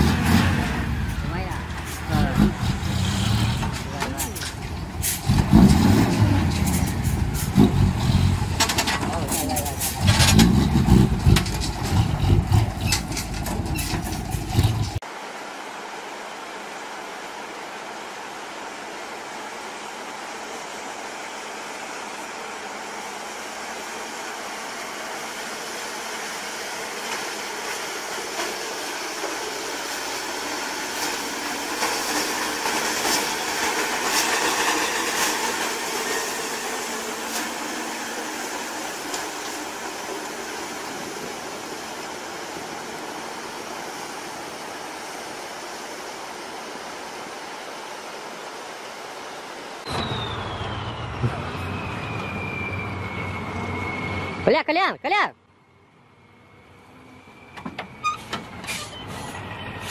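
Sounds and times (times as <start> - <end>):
vehicle passing by: 0.0 - 13.0
knocks and rattles: 3.6 - 15.0.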